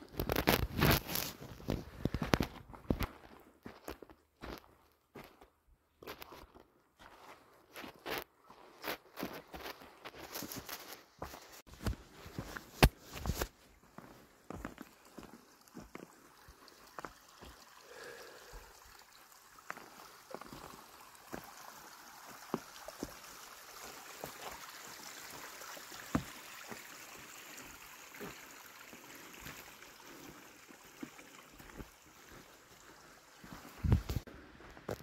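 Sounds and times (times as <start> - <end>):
footsteps crunching through snow: 0.2 - 5.4, 6.0 - 16.1, 33.4 - 35.0
stream running: 6.0 - 35.0.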